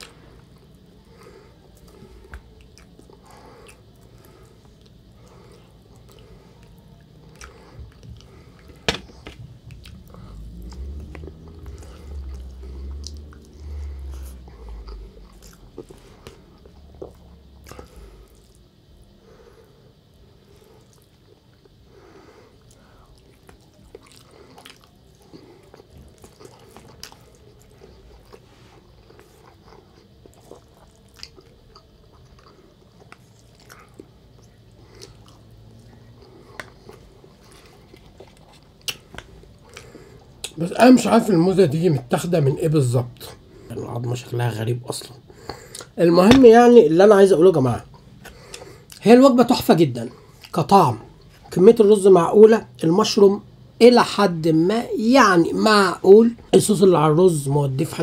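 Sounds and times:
person chewing: 0.0s - 40.7s, 45.2s - 46.4s, 47.8s - 49.0s, 50.1s - 51.5s.

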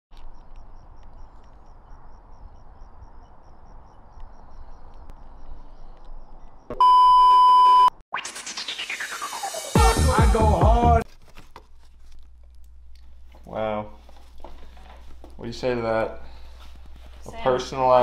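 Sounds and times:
test-tone beep: 6.7s - 8.0s
rising electronic sweep: 8.1s - 11.0s.

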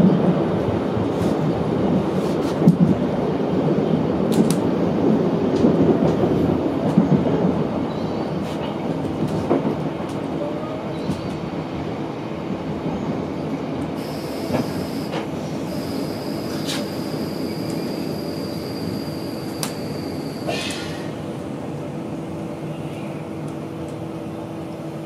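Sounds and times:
train rumbling on rails: 0.0s - 25.0s
faint high-pitched squeal: 14.0s - 21.1s.

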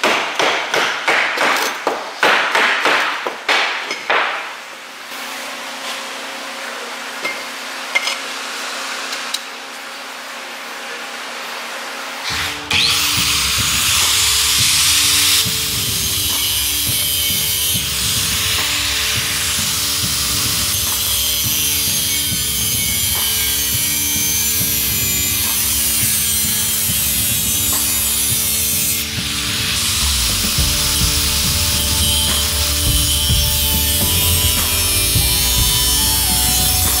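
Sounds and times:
angle grinder cutting metal pipe: 12.1s - 37.0s.

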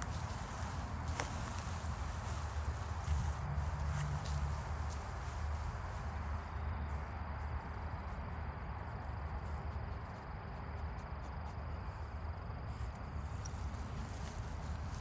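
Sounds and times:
footsteps through grass: 0.0s - 7.0s, 13.2s - 15.0s
crickets trilling: 0.0s - 15.0s.

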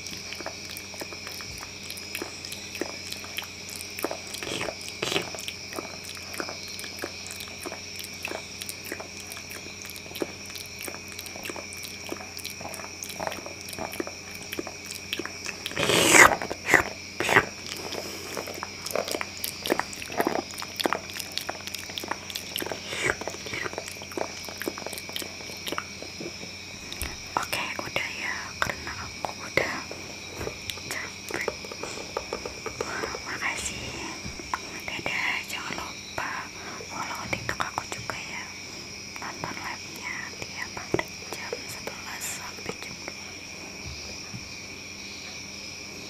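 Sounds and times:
chomping: 0.0s - 35.1s
wet mouth clicks and smacks: 0.0s - 38.4s.

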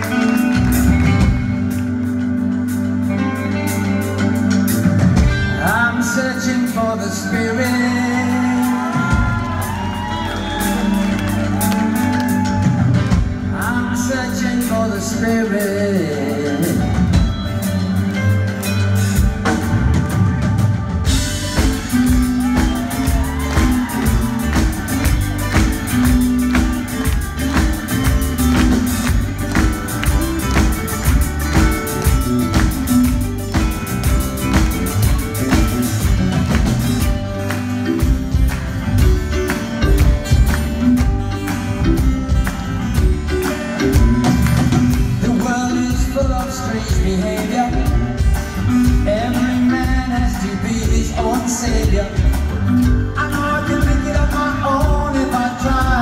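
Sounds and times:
live band playing: 0.0s - 56.0s.

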